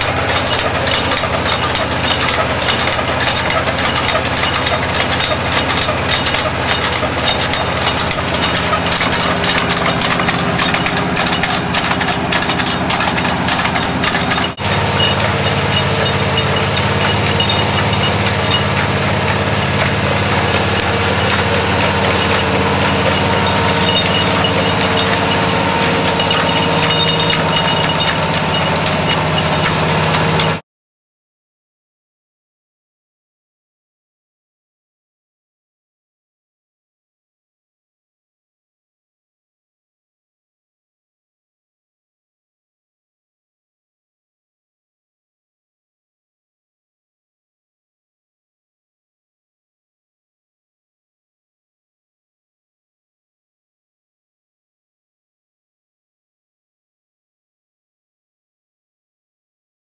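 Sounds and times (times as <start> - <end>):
drill gear rattling: 0.0 - 30.6
drilling rig drone: 0.0 - 30.6.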